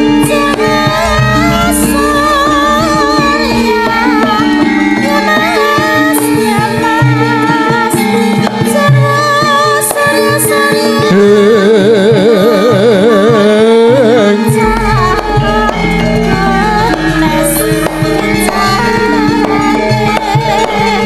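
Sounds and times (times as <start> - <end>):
voice holding wavering note: 0.0 - 6.0
metallophone notes: 0.0 - 12.1, 12.7 - 21.0
deep sustained low tone: 0.5 - 5.1.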